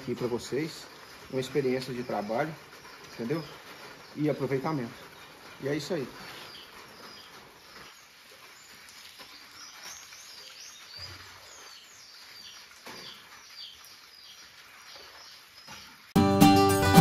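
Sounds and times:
birds chirping: 0:00.0 - 0:17.0
acoustic guitar music: 0:16.2 - 0:17.0.

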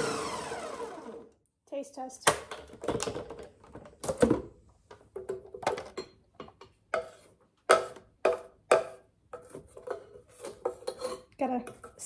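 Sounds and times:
spoon scraping blender jar: 0:06.9 - 0:12.0.

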